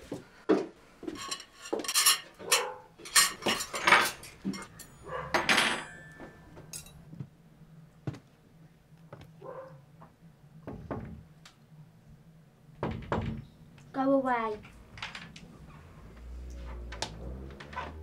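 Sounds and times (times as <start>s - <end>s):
cutlery and plates clattering: 1.1s - 7.0s.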